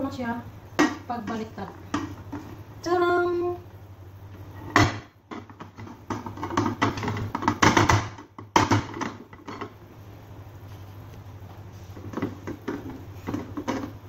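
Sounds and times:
baking pan knocking on plate: 4.7 - 9.7.

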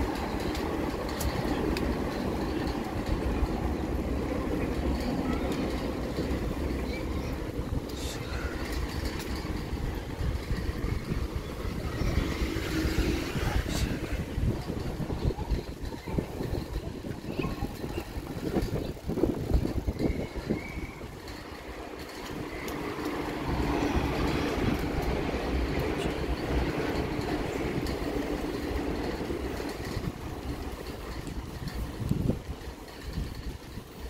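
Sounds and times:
passing motor vehicle hum: 0.0 - 16.2, 21.4 - 30.7
bicycle rattling over brick paving: 0.0 - 34.0
wind on microphone: 0.0 - 34.0.

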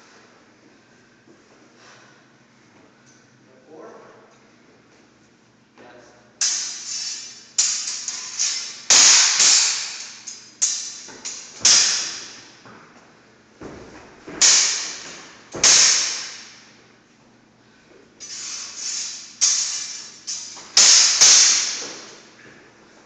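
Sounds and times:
sword blades clashing: 6.4 - 12.4, 14.4 - 16.6, 18.2 - 22.3.

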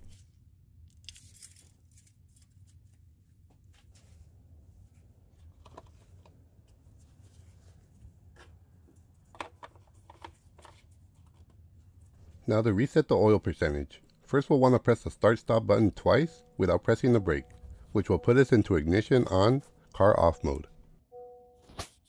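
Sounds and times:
low hum: 12.0 - 21.8.

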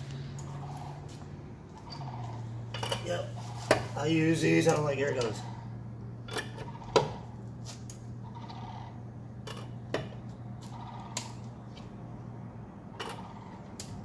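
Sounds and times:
low steady hum: 0.0 - 14.0
wrench and lug nuts clinking: 2.7 - 3.2.

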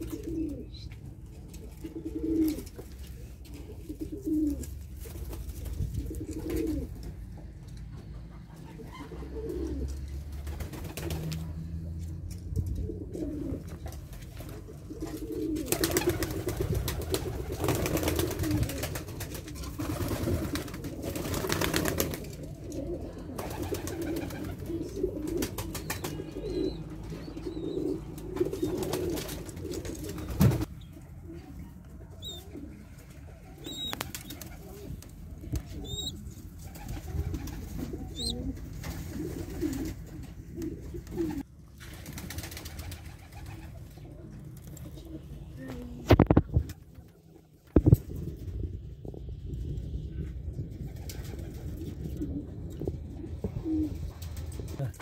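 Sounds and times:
pigeons cooing: 0.0 - 5.1, 5.8 - 41.5, 42.4 - 55.0
wings flapping and rustling: 0.0 - 31.4, 32.2 - 55.0.

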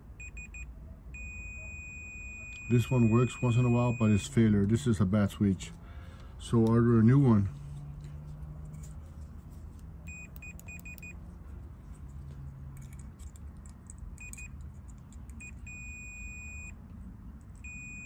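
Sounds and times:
multimeter continuity beeps: 0.2 - 4.6, 10.1 - 11.2, 14.2 - 14.6, 15.4 - 16.8, 17.6 - 18.0.

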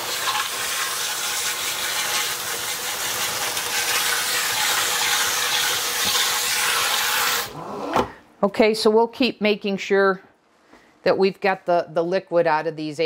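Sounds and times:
pan being rinsed under water: 0.0 - 7.5
kitchen faucet running: 0.0 - 7.6.

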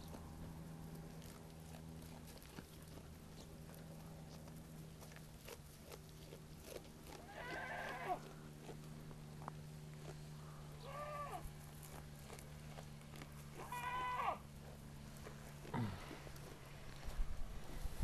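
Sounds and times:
low steady hum: 0.0 - 18.0
goat bleating: 5.0 - 8.9, 10.7 - 14.8.

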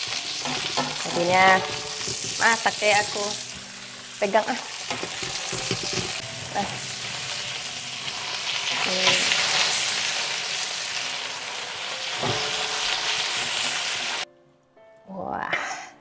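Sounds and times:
vegetables sizzling in a wok: 0.0 - 14.3
wooden utensil knocking pan: 0.4 - 2.8, 4.9 - 6.2.

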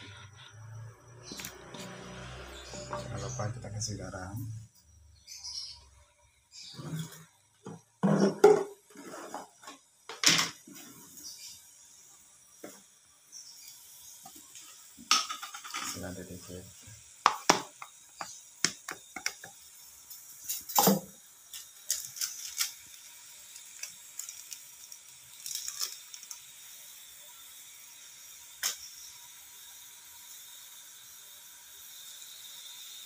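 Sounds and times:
sauce simmering in a wok: 16.7 - 33.0.

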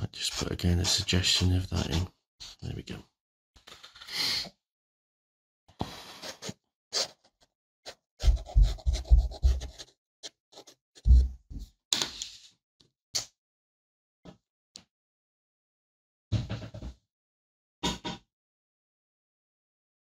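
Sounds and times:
pen scratching on paper: 7.9 - 11.2.

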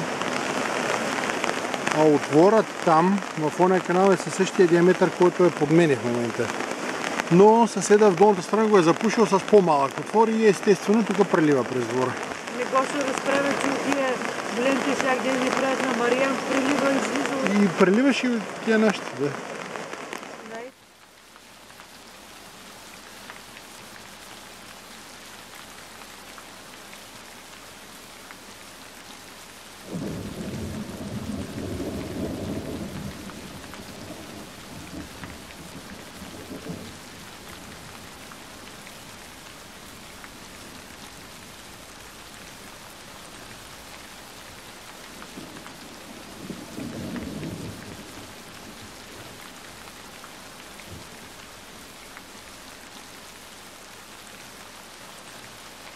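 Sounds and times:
steady rain: 0.0 - 55.9
thunder rolling: 29.9 - 37.0.

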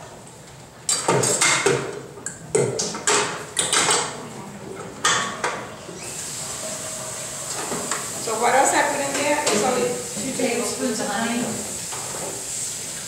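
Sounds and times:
steel mixing bowl clanking: 6.4 - 12.4.

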